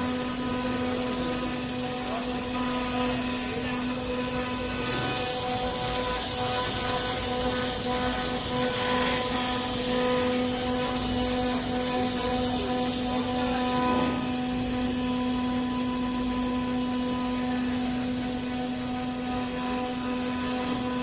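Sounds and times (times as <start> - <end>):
hiss of cutting wood: 0.0 - 16.1
wood router whining: 0.0 - 21.0.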